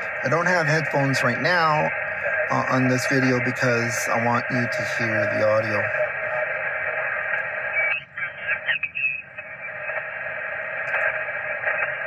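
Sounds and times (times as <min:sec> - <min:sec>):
garbled radio voice warbling: 0:00.0 - 0:06.1, 0:07.8 - 0:09.5
radio static hiss: 0:00.0 - 0:12.0.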